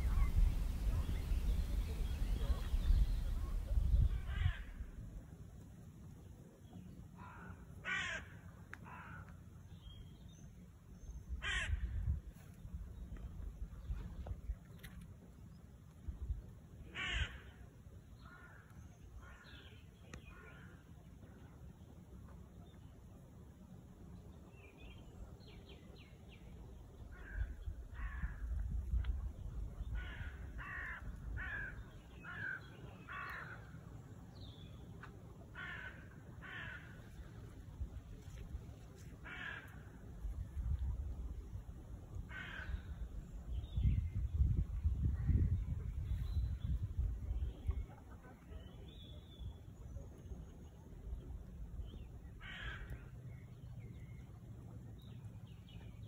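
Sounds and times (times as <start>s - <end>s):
low rumble: 0.0s - 5.1s
crow cawing: 7.2s - 9.2s, 11.4s - 11.8s, 17.0s - 17.4s, 30.0s - 33.6s, 35.6s - 37.0s, 39.2s - 39.8s, 42.3s - 42.8s, 52.4s - 53.0s.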